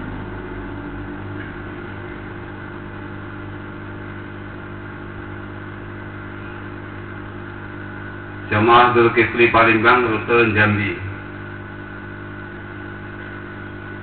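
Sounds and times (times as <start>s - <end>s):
low rumble: 0.0s - 4.7s.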